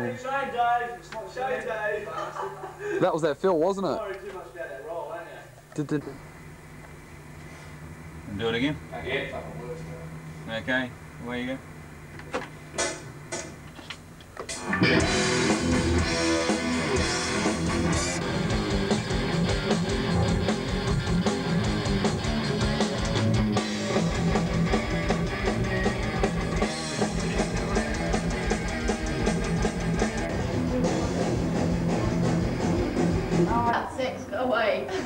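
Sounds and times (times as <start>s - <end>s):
metal band playing: 14.5s - 33.9s.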